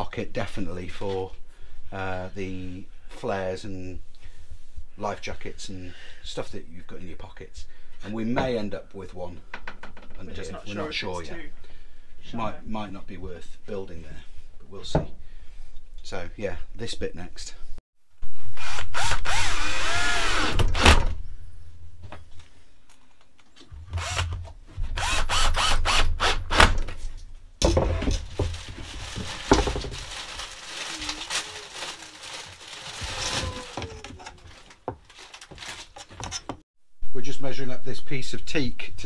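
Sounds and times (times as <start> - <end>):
cordless drill driving screws: 18.6 - 20.8, 23.9 - 24.4, 25.0 - 26.5
handling sounds: 27.0 - 36.6.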